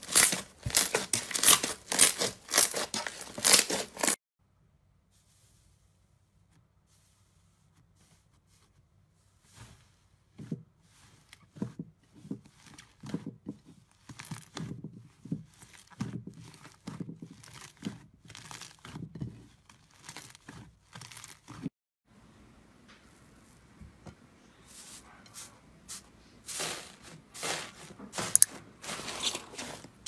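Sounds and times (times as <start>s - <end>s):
slime squeezed by hand crackling: 0.0s - 4.2s.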